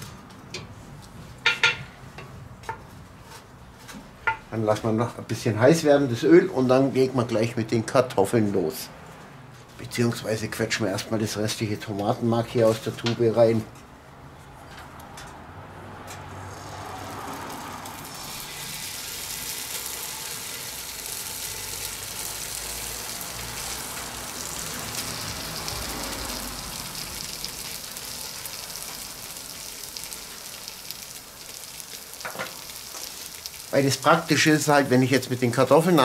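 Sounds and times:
tomato paste sizzling in oil: 16.6 - 36.0.

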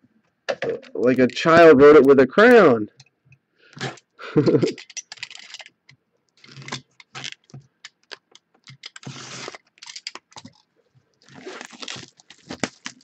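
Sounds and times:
plastic crinkling: 6.4 - 13.0
knife scraping plastic wrap: 8.8 - 10.6, 11.2 - 13.0.

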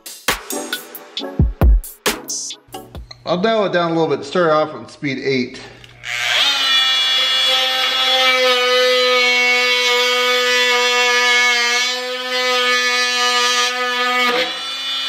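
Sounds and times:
oscillating tool buzzing: 5.8 - 15.0.

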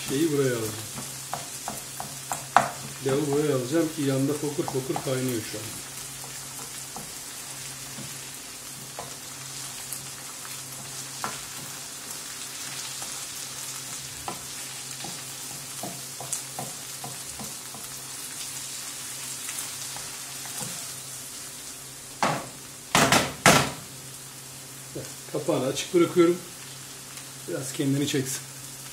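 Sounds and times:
vegetables sizzling in a frying pan: 0.0 - 28.9
spatula tapping and scraping pan: 0.9 - 3.6, 4.3 - 5.3, 6.2 - 9.3, 10.8 - 11.8, 13.8 - 18.0.

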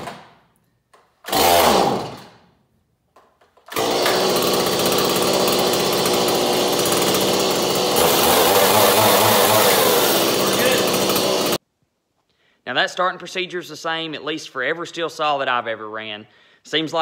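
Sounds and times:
chainsaw engine running: 1.3 - 2.3, 3.7 - 11.6.

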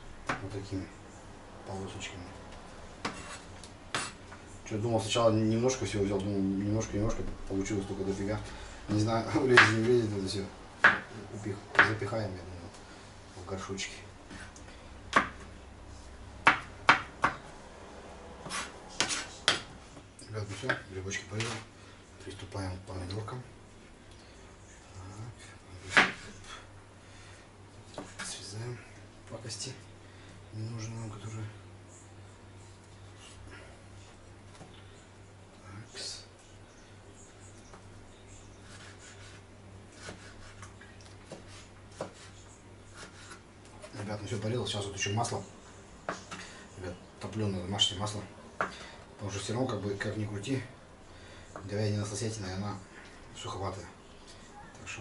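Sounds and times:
knife slicing tomatoes: 18.4 - 19.7, 38.6 - 44.0.

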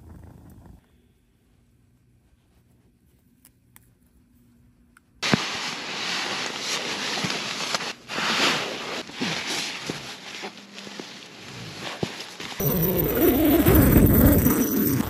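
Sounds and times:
nylon sleeping bag rustling: 5.2 - 15.0.

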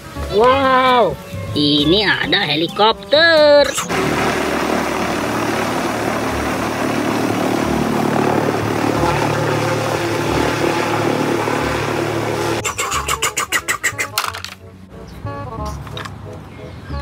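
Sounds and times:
helicopter turbine and rotor noise: 3.7 - 12.7
fast regular rotor beating: 3.8 - 13.1.

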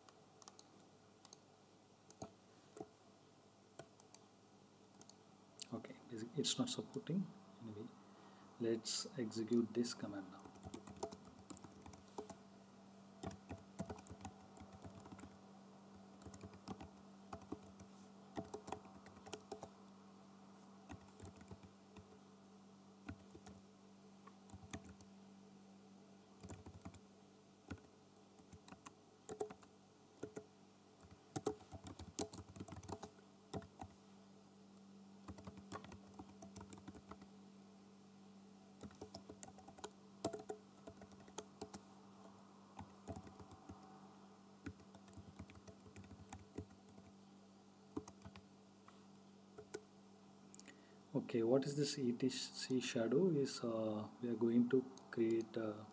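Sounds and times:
faint steady hum: 0.0 - 55.9
keyboard typing: 10.4 - 12.4, 13.2 - 19.7, 20.9 - 22.1, 23.1 - 23.6, 24.5 - 25.1, 26.4 - 27.0, 27.7 - 34.0, 35.2 - 37.3, 38.8 - 43.9, 44.6 - 47.1, 48.0 - 48.4, 49.6 - 49.8.

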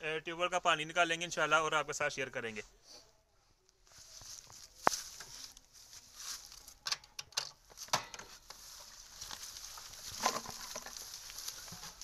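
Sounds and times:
rustling on dry grass: 3.8 - 6.8, 7.6 - 12.0.

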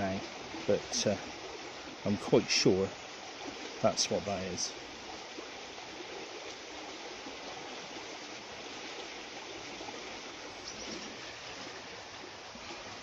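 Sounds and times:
river rushing: 0.0 - 13.0.

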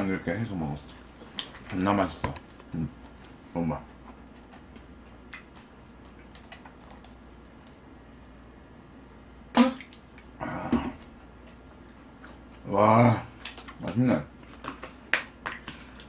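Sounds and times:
short sharp sound: 9.5 - 9.8.

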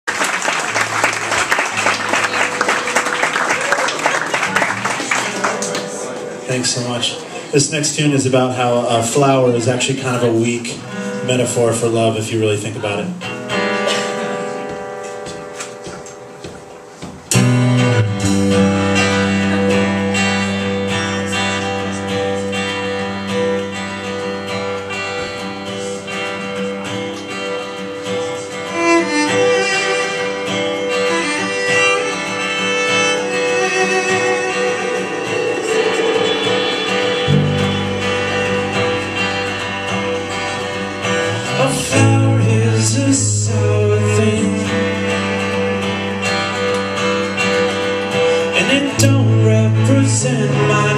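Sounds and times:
strummed acoustic guitar: 0.4 - 50.9
cello: 28.4 - 40.8
electric bass: 36.2 - 46.8.

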